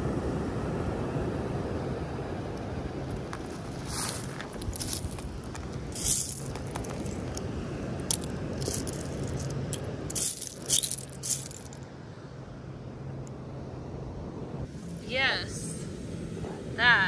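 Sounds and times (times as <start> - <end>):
steady low rush: 0.0 - 17.0
seashells clinking and rattling: 4.1 - 11.8.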